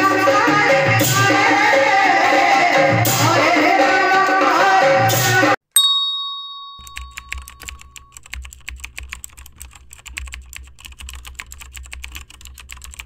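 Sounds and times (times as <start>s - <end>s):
chime ringing: 5.8s - 8.2s
rapid irregular clicking: 6.8s - 13.0s.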